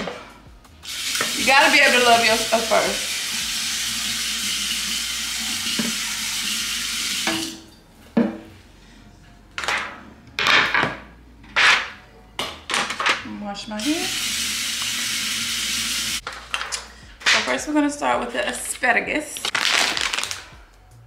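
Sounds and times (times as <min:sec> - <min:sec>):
kitchen tap running: 0:00.8 - 0:07.6, 0:13.8 - 0:16.2.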